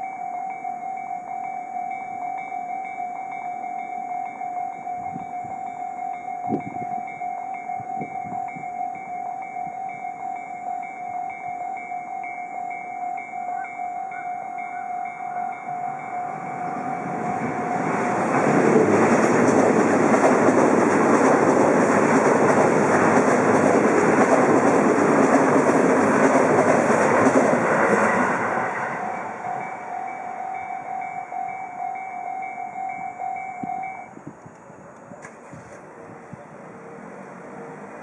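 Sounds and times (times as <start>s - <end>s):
level crossing bells ringing: 0.0s - 18.6s, 28.6s - 34.2s
train passing rumble: 0.5s - 38.0s.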